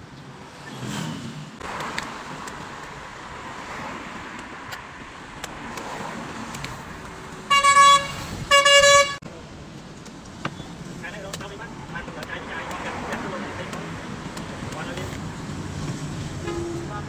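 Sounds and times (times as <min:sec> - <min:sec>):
passing road traffic: 0:00.0 - 0:17.0
vehicle horn honking: 0:07.5 - 0:09.2, 0:16.4 - 0:17.0.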